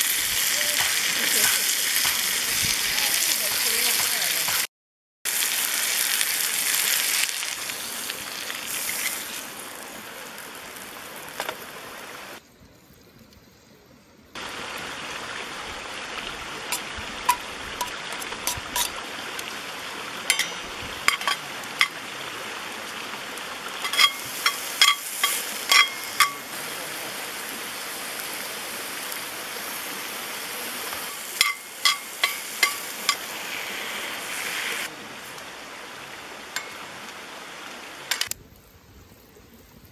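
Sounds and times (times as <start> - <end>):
food sizzling in a frying pan: 0.0 - 4.7, 5.3 - 12.4, 14.4 - 38.4
metal tongs clinking on pan: 20.3 - 22.0, 23.8 - 26.4, 31.0 - 33.2.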